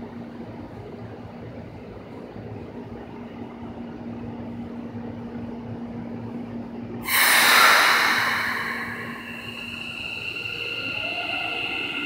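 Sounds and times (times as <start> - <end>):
train low hum: 0.0 - 12.0
compressed air hiss: 7.0 - 12.0.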